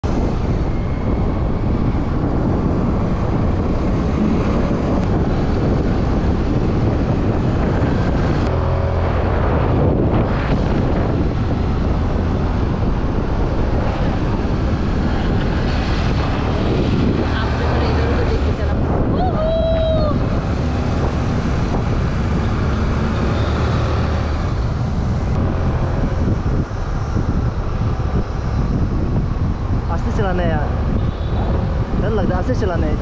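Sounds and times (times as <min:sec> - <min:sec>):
engine hum: 0:00.0 - 0:33.0
road noise: 0:00.0 - 0:33.0
wind on microphone: 0:00.0 - 0:33.0.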